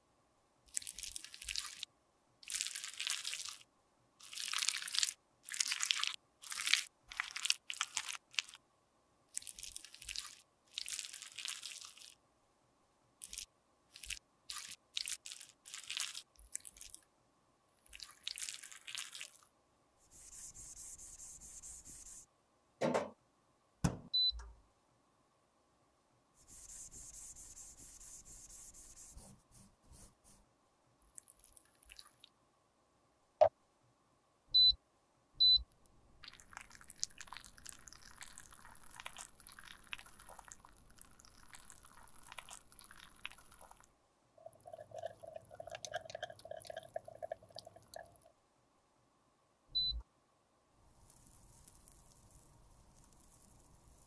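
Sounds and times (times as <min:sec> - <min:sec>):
tissue rubbing a dish: 0:20.0 - 0:22.2, 0:26.4 - 0:30.4
sharp knocks: 0:22.8 - 0:23.2.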